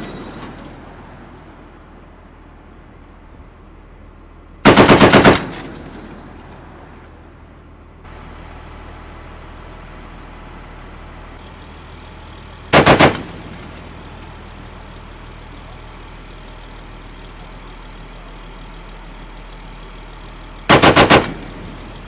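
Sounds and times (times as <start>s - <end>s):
machine gun bursts: 4.7s - 5.7s, 12.8s - 13.5s, 20.7s - 21.7s.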